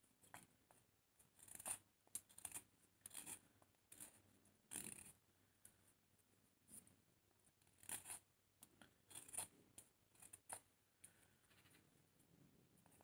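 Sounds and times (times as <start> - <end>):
knife scraping wood: 1.4 - 5.2.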